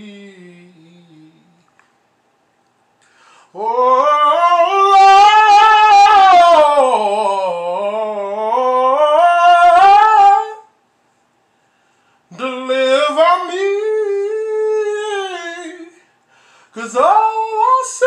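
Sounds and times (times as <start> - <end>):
man singing long note: 3.6 - 10.7.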